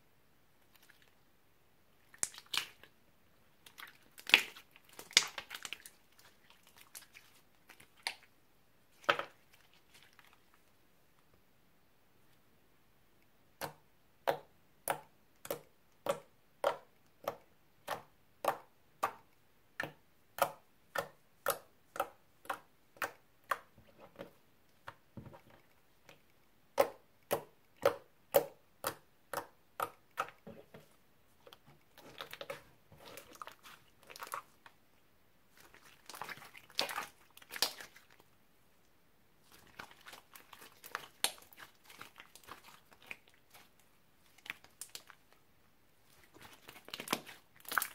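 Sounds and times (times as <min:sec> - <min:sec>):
slime squishing and crackling: 0:02.1 - 0:02.9, 0:03.6 - 0:08.3, 0:31.9 - 0:34.6, 0:35.5 - 0:38.3, 0:39.4 - 0:45.4, 0:46.1 - 0:47.9.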